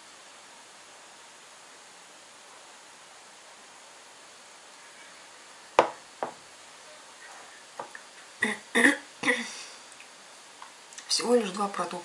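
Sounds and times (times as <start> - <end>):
steady hiss: 0.0 - 12.0
sharp knocks: 5.8 - 6.4.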